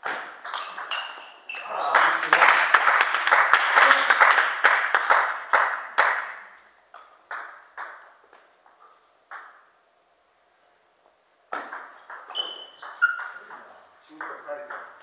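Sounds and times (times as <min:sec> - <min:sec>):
short high squeaks: 0:00.5 - 0:01.9, 0:12.3 - 0:13.5.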